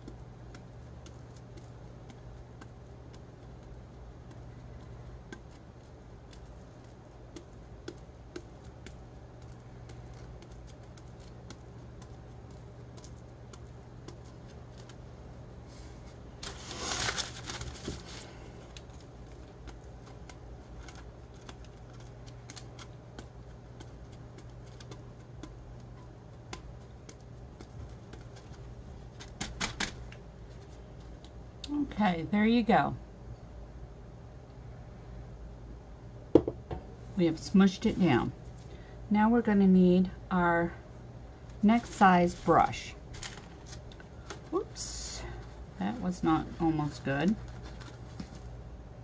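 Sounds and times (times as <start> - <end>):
steady low hum: 0.0 - 49.0
glitter crunching under plastic: 4.4 - 31.3, 41.4 - 48.6
plastic rustling: 15.7 - 25.3, 41.4 - 48.6.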